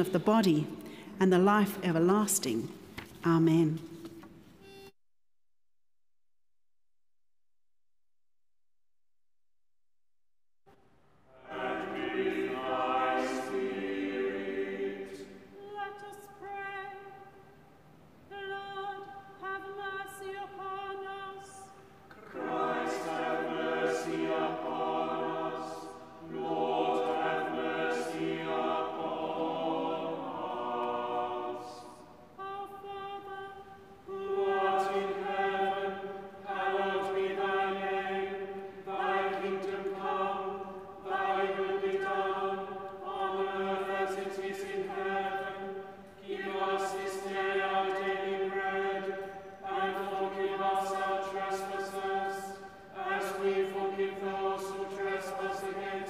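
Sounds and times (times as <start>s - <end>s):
choir singing in harmony: 11.2s - 17.6s, 18.3s - 56.0s.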